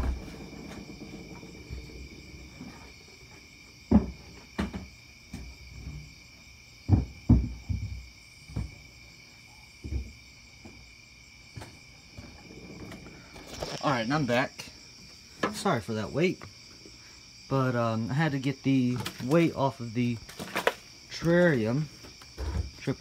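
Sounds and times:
crickets trilling: 0.0 - 23.0
dull thumps and knocks: 3.8 - 6.2, 6.8 - 8.9, 9.8 - 10.8.

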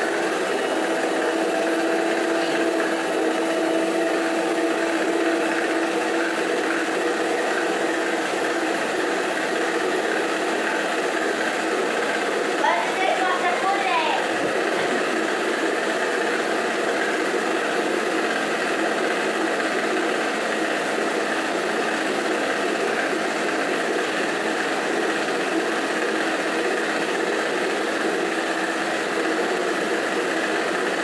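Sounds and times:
stand mixer motor humming: 0.0 - 31.0.

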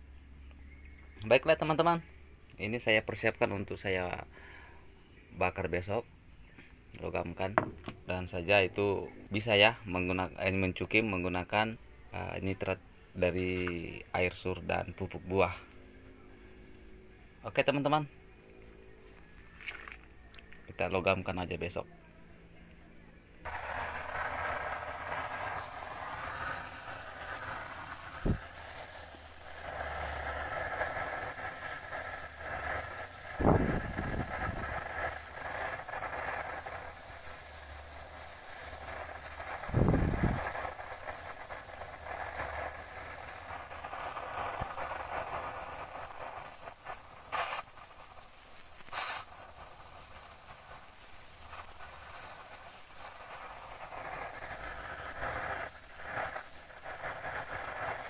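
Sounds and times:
blowtorch flame hissing: 0.0 - 21.8, 23.4 - 58.0.

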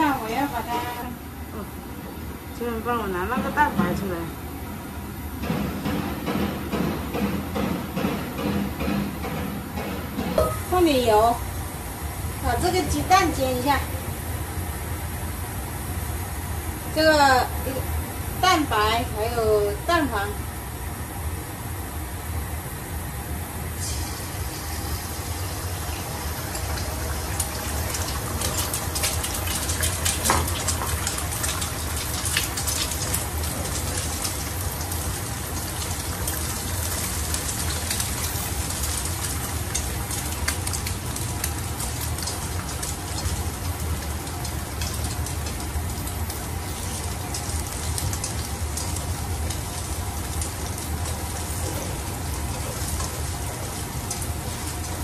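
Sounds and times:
egg sizzling in oil: 23.4 - 55.0.

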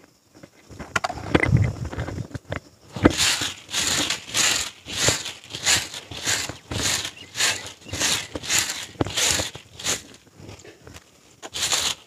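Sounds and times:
scrapes and knocks: 1.4 - 10.6, 11.4 - 12.0
broom sweeping dirt: 2.9 - 10.6, 11.4 - 12.0.

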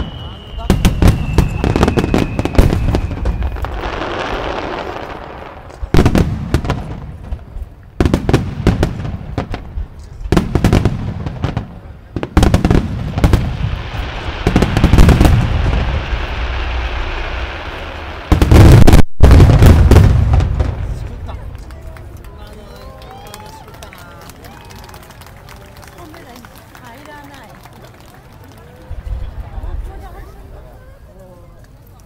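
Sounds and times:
crackling hiss of burning stars: 0.0 - 10.3, 11.0 - 21.7.

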